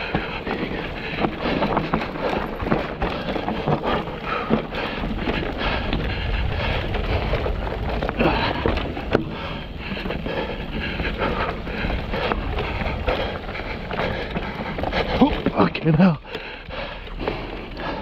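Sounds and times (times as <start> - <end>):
bike rattling and knocking: 0.0 - 18.0
bike tyres rolling over rock: 0.0 - 18.0
wind on microphone: 4.2 - 15.5.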